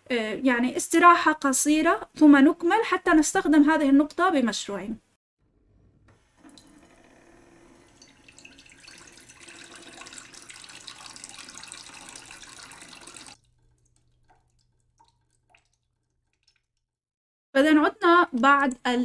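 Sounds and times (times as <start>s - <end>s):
water pouring into glass: 7.8s - 16.7s
water drips: 7.9s - 17.0s.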